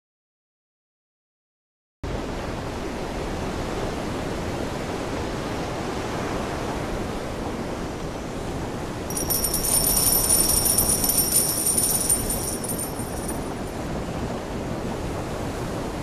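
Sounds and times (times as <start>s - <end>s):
high shimmering ringing: 9.1s - 13.7s.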